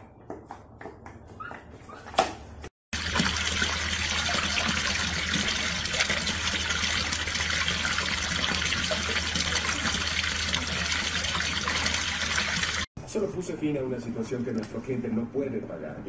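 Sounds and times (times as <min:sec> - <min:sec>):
running water gushing: 0:02.9 - 0:12.9.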